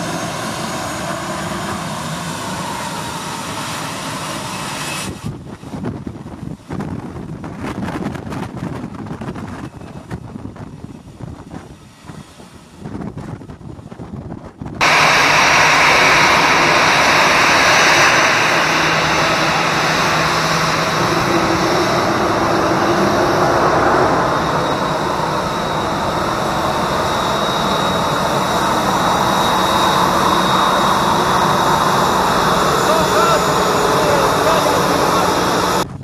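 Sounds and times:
jet engines running loud: 0.0 - 36.0
faint high whine: 14.8 - 35.9.

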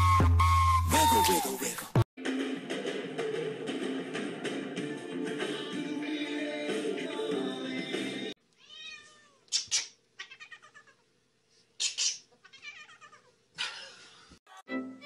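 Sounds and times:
music: 0.0 - 8.4, 14.5 - 15.0
cat yowling and meowing: 8.6 - 9.4, 10.2 - 11.0, 12.4 - 13.3.

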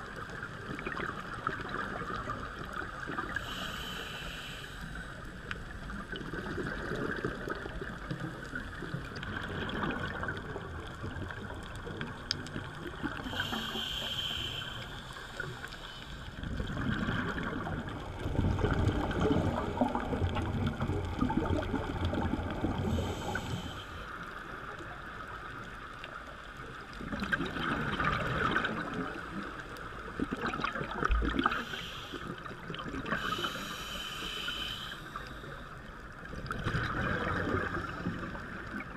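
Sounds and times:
underwater regulator bubbles gurgling: 0.0 - 4.4, 5.0 - 25.4, 26.0 - 38.9
steady hiss: 3.2 - 6.0, 13.1 - 16.4, 22.8 - 24.8, 31.4 - 35.8.

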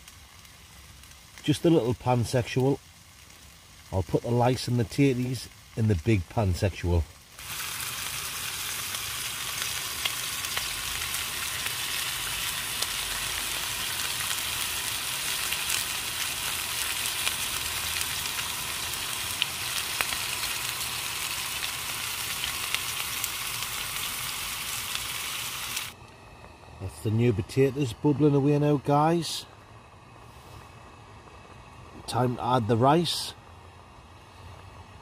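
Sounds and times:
meat sizzling in a frying pan: 0.0 - 26.0.

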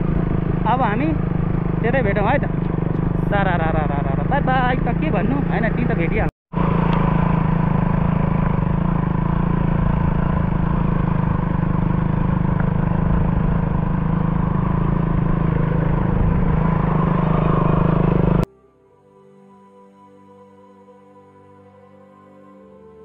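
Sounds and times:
motorcycle engine running: 0.0 - 18.5
road and wind noise: 0.0 - 18.5.

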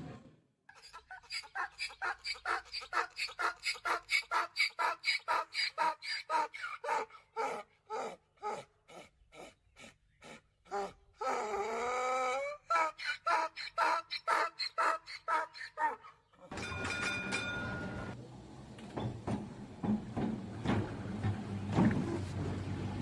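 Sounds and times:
rapid rhythmic animal calls: 0.7 - 11.1, 12.7 - 16.5.

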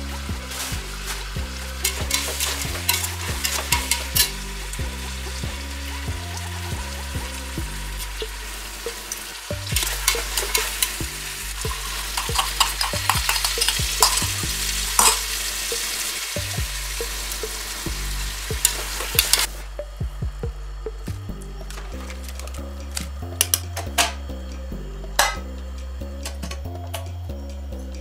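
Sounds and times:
frying sizzle: 0.0 - 19.6.

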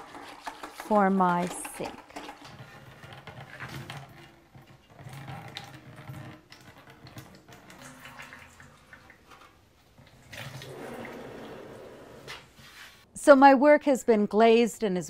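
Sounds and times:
liquid glaze pouring and splashing: 3.6 - 11.6.

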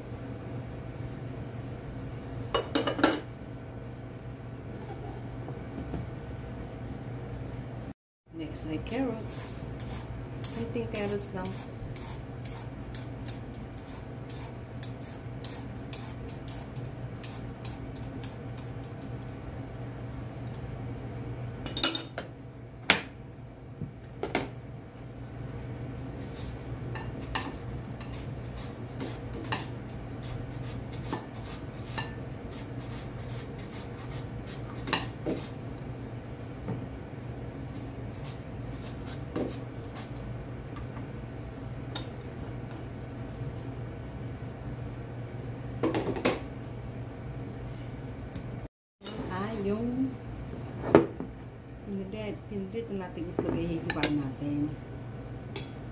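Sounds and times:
steady low hum: 0.0 - 55.9
peeler scraping carrot: 9.2 - 19.0.

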